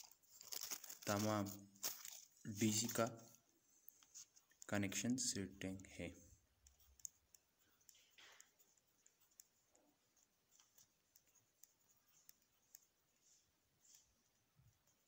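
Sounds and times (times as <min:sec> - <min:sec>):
small irregular clicks: 0:01.8 - 0:04.9, 0:06.4 - 0:15.0
pencil scratching on paper: 0:06.4 - 0:15.0.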